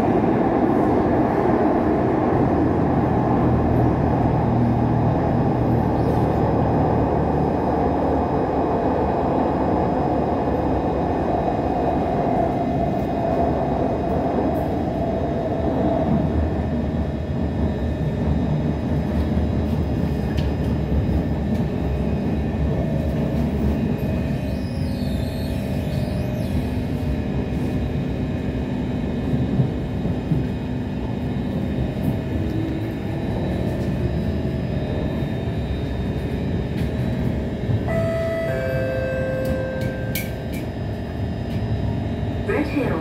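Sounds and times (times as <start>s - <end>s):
train wheels rumbling on rail: 0.0s - 43.0s
faint steady tones: 37.9s - 40.3s
clear steady tones: 37.9s - 40.6s.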